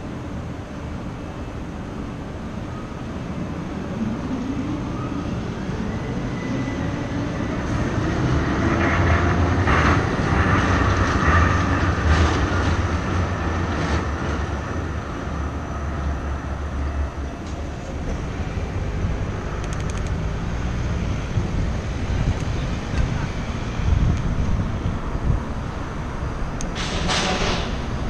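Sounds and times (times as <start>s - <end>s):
street background noise: 0.0s - 28.0s
tram passing on rails: 0.0s - 28.0s.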